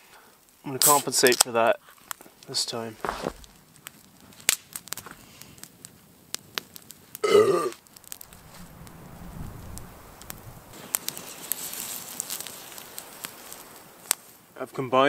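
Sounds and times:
man burping: 7.2s - 7.8s.

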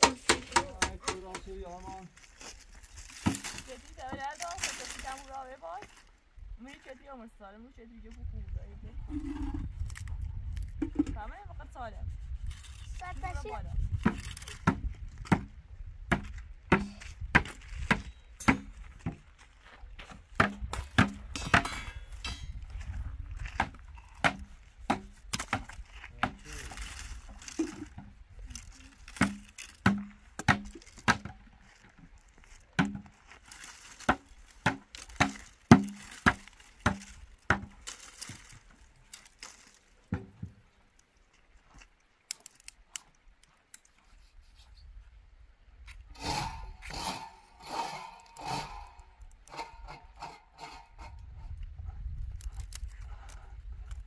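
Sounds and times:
chopping on wood: 0.0s - 1.6s, 3.2s - 4.3s, 14.0s - 15.5s, 16.1s - 19.2s, 20.1s - 21.8s, 23.4s - 26.5s, 29.1s - 31.5s, 32.8s - 33.2s, 34.0s - 37.9s, 40.1s - 40.6s.

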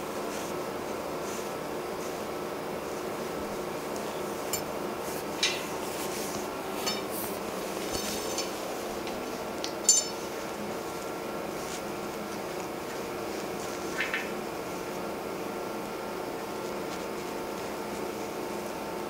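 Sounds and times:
metallic clinks and jingles: 9.8s - 10.2s.

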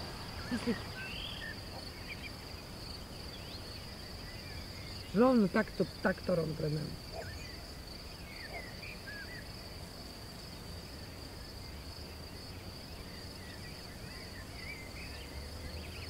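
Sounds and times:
faint bird twitters: 0.0s - 6.4s, 7.1s - 9.5s
insect chirring: 0.0s - 16.0s.

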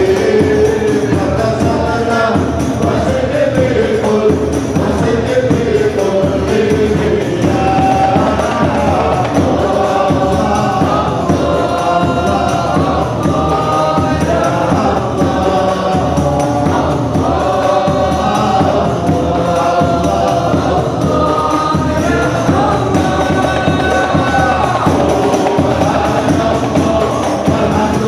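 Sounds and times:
frame drums beating: 0.0s - 28.0s
men singing together: 0.0s - 28.0s.

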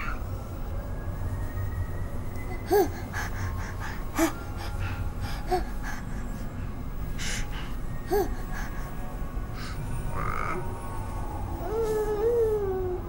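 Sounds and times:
breathy rustling: 2.5s - 9.9s.

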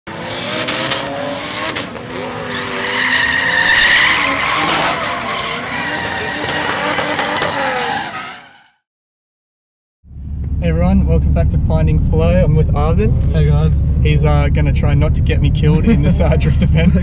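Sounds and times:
car engines revving: 0.1s - 8.7s, 10.1s - 17.0s
tyres squealing: 2.4s - 8.7s.

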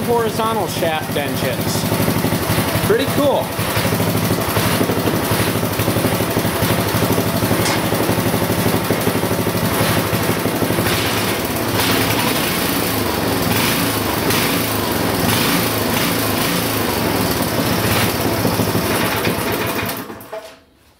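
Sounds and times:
tiller engine running: 0.0s - 20.4s.

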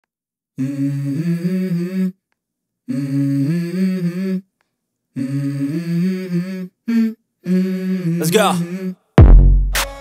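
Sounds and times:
low voice humming melody: 0.6s - 2.2s.

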